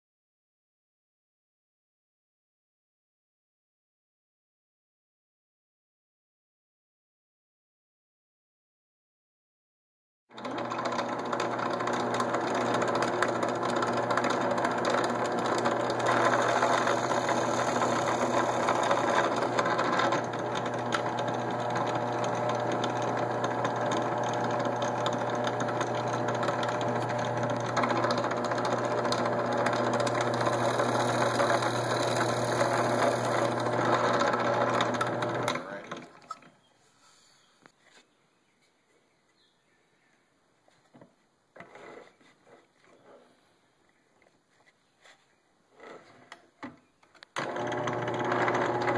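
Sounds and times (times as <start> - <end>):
drill press motor hum: 10.3 - 36.1, 47.4 - 48.9
drill bit boring into wood: 10.3 - 36.4, 47.4 - 48.9.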